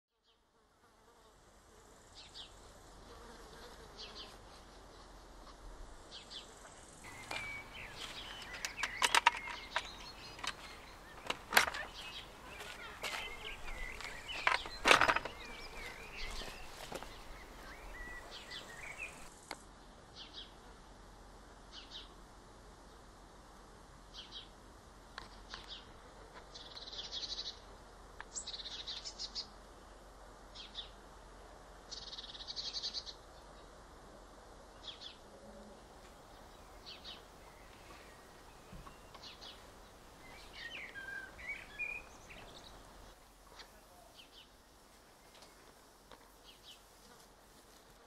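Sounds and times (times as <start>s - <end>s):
flying insect buzzing: 0.5s - 19.6s, 45.0s - 48.0s.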